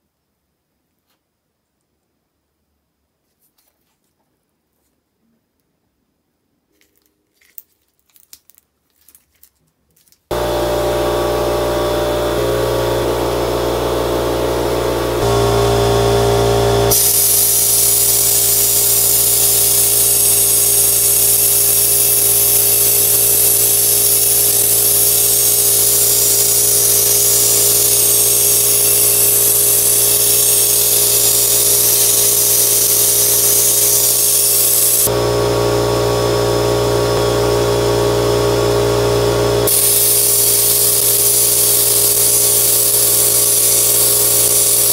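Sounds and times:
machine humming: 10.3s - 44.9s
blast gun hissing: 14.6s - 35.1s, 39.6s - 44.9s.

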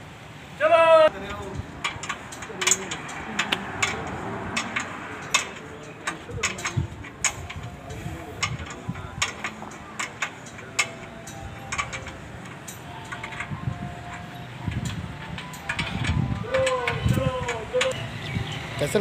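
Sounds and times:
low background murmur: 1.0s - 19.0s
metallic clicks and taps: 1.2s - 18.0s.

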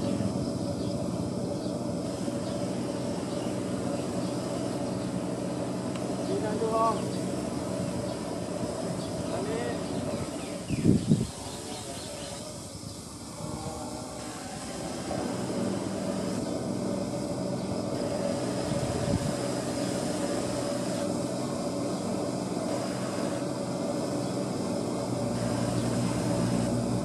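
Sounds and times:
drone propellers buzzing: 0.0s - 27.0s.

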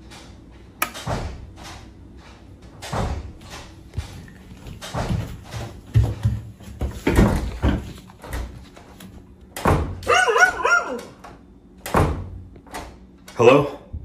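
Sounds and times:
footsteps on wooden stairs: 3.0s - 9.8s
animal high cries: 10.1s - 11.2s.

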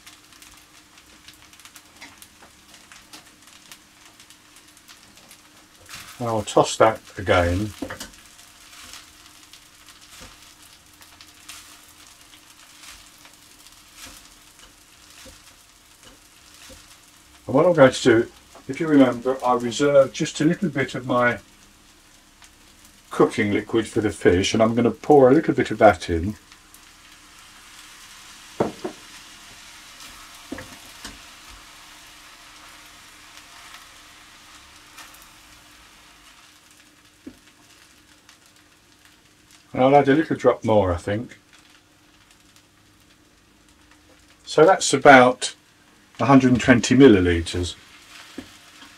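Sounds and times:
rice sizzling in a frying pan: 0.0s - 48.9s
utensil knocking against pan: 28.6s - 29.0s.

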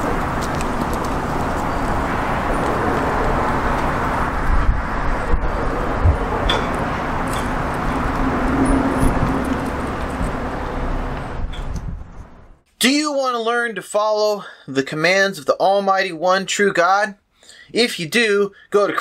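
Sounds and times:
outdoor rumble and hiss: 0.0s - 12.6s.

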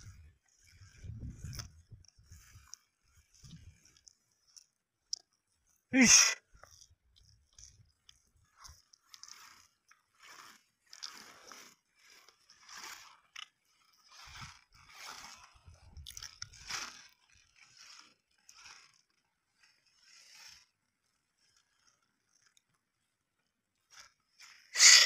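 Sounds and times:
cow tearing grass: 0.0s - 4.2s, 7.6s - 19.2s.

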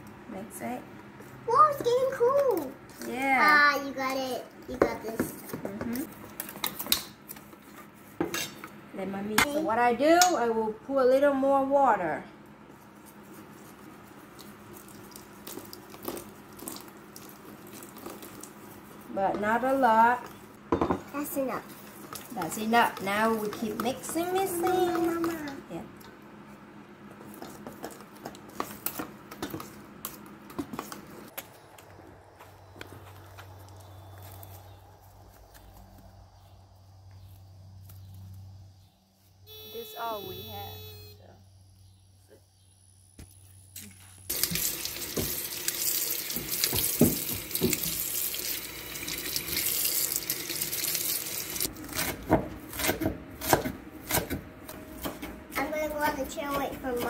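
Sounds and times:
low steady hum: 5.6s - 45.8s
knife chopping on wooden board: 51.9s - 55.3s.

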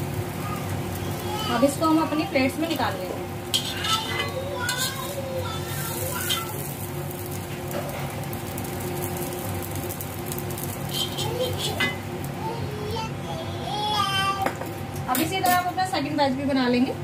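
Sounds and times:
bread sizzling in oil: 0.0s - 16.9s
metal spatula scraping pan: 3.5s - 5.2s, 10.9s - 12.0s.

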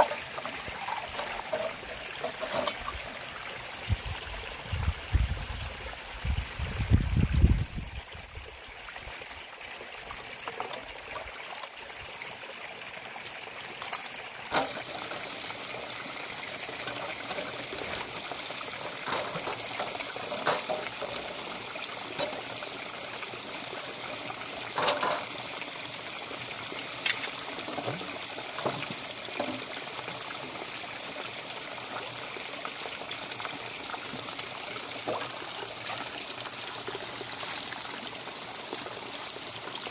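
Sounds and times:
metal pots being scrubbed: 0.0s - 3.3s, 13.8s - 25.7s
stream trickling over stones: 0.0s - 39.9s.

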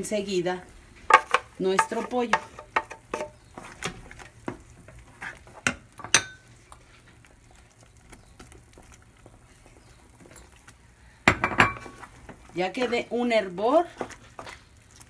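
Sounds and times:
metal spoon clinking on saucepan: 6.0s - 6.4s.

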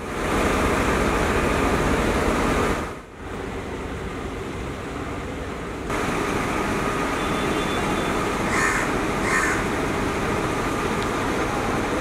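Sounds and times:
steady background noise: 0.0s - 12.0s
crow cawing: 8.5s - 9.7s.

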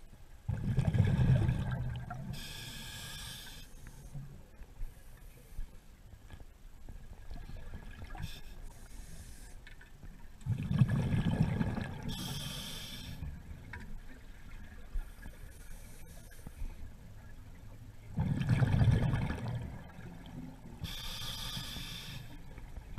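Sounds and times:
exhaled bubbles rushing: 0.5s - 2.2s, 10.5s - 12.1s, 18.2s - 20.0s
regulator inhalation hiss: 2.4s - 4.1s, 12.1s - 13.2s, 20.8s - 22.4s.

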